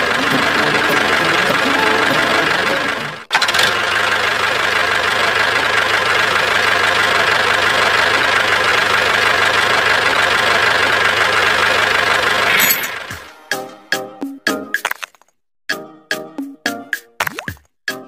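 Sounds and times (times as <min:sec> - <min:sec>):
toy tractor engine whine: 0:00.0 - 0:13.3.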